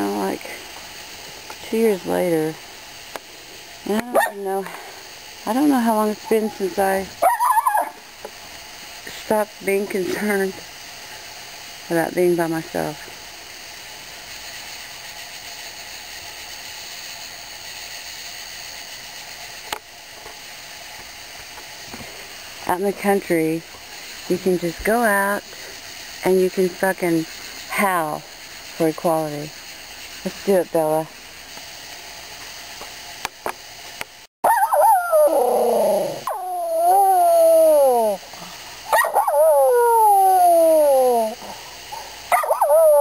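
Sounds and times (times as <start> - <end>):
night insects buzzing: 0.0 - 43.0
dog howling: 7.2 - 8.0, 34.4 - 38.2, 38.9 - 41.6, 42.3 - 43.0.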